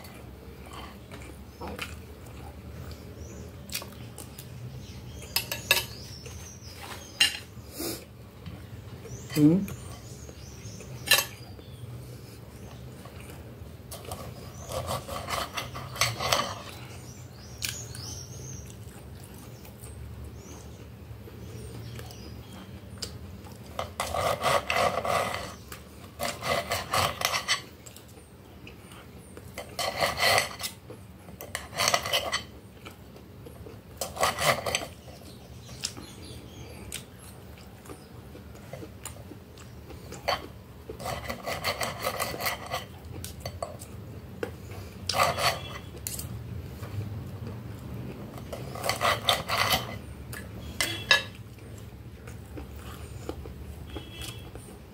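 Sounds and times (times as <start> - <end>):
knife scraping on glass plate: 13.9 - 16.8, 23.8 - 25.6, 26.2 - 27.7, 29.6 - 30.8, 31.4 - 32.5, 34.0 - 35.0, 40.2 - 43.7, 45.1 - 46.2, 48.4 - 50.1, 50.7 - 51.4.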